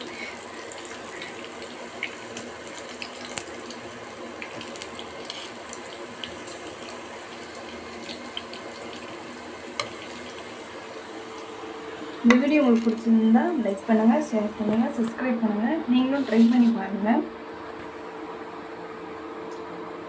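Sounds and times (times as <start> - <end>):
fish sizzling in a frying pan: 0.0 - 11.6.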